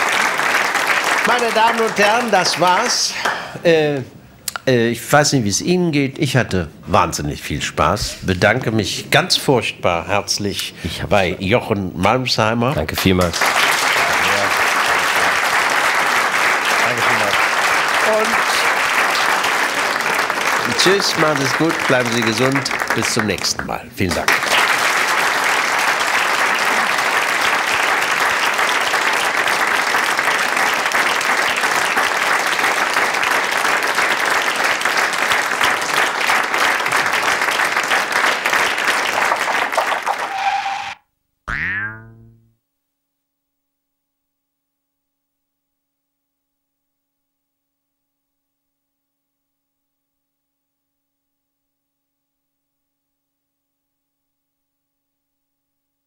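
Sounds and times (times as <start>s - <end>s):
audience applauding: 0.0s - 3.5s, 13.0s - 41.0s.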